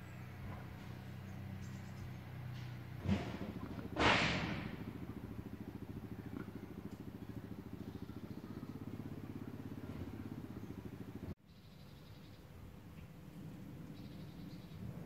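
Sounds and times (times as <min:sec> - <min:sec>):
diesel engine idling: 0:00.0 - 0:11.4.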